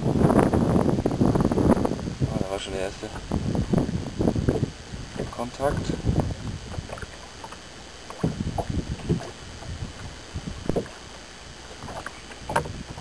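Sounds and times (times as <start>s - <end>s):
low rumble of wind: 0.0s - 13.0s
waves lapping against boat hull: 0.0s - 13.0s
water splashes: 2.9s - 13.0s.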